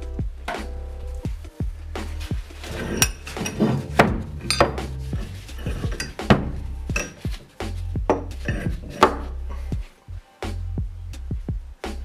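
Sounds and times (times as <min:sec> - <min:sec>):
background music: 0:00.0 - 0:12.0
metal clinks and knocks: 0:02.6 - 0:07.4, 0:08.1 - 0:09.3.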